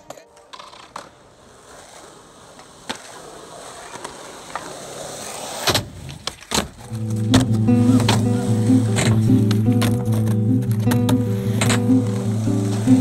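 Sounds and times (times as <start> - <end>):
skateboard clacks: 0.0 - 13.0
skateboard wheels rolling on asphalt: 0.0 - 13.0
music: 6.9 - 13.0.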